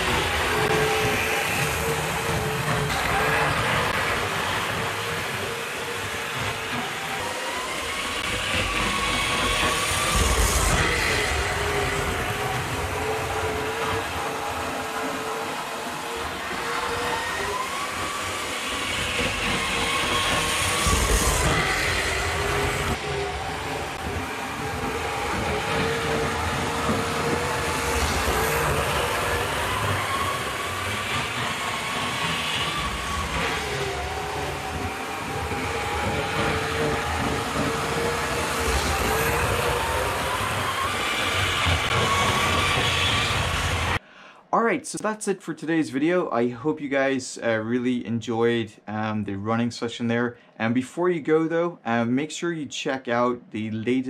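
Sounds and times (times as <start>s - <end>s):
model train motor whine: 0.0s - 44.0s
wheels clicking on rails: 0.0s - 44.0s.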